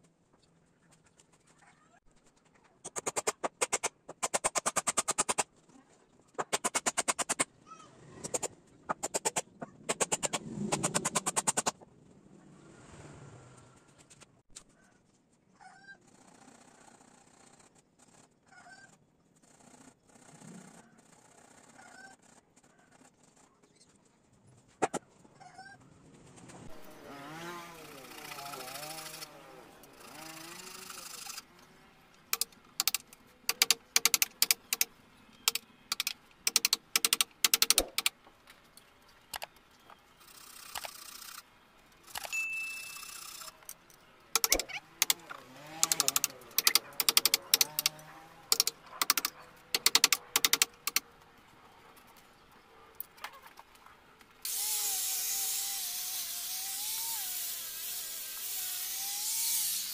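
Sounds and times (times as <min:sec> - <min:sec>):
power tool whining: 0:26.7 - 0:31.7, 0:44.4 - 0:51.0, 0:54.5 - 0:59.9
high ding: 0:42.3 - 0:43.0.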